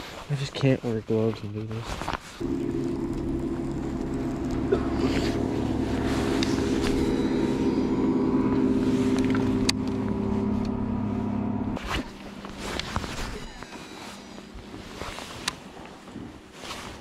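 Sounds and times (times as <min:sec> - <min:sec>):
electric trolling motor humming: 0:02.4 - 0:14.8.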